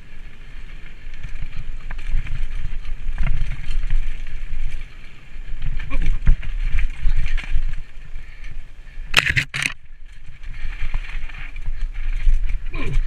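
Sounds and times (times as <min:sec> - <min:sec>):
bike rumbling over dirt trail: 0:00.0 - 0:13.0
harsh scraping noises: 0:09.0 - 0:13.0.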